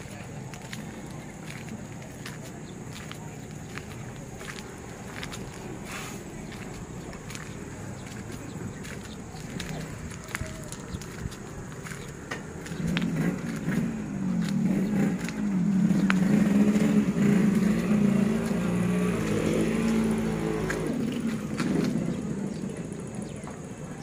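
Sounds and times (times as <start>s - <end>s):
vehicle engine running: 0.0s - 24.0s.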